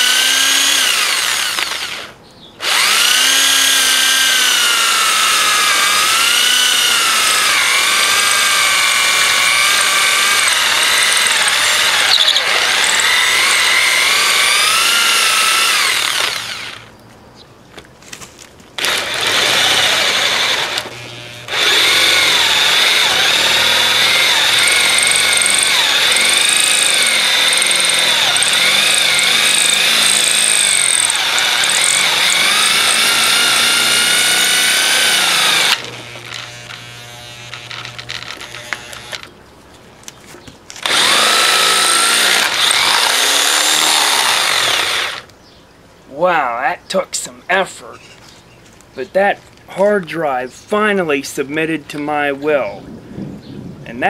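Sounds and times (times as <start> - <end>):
electric drill whining under load: 0.0 - 16.9, 18.8 - 39.3, 40.8 - 45.3.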